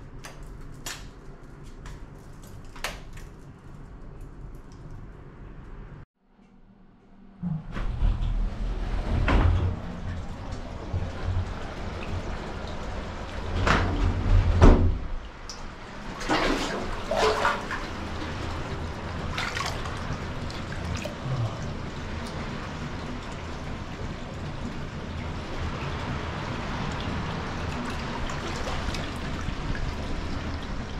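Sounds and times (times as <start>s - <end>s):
water pouring into a tub: 15.9s - 30.9s.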